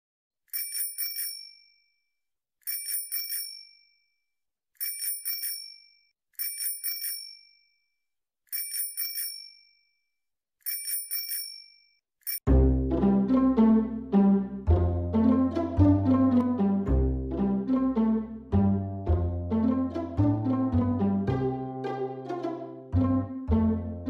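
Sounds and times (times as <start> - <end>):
bicycle bell ringing: 0.5 - 1.9, 2.6 - 4.0, 4.8 - 7.8, 8.5 - 9.9, 10.6 - 12.5
loud string music: 12.5 - 24.0.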